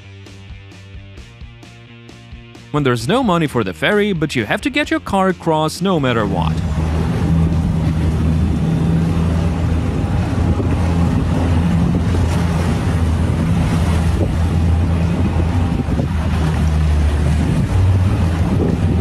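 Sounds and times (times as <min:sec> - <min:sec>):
boat motor running: 0:00.1 - 0:19.0
water rushing and waves: 0:02.6 - 0:19.0
wind noise on microphone: 0:06.5 - 0:19.0.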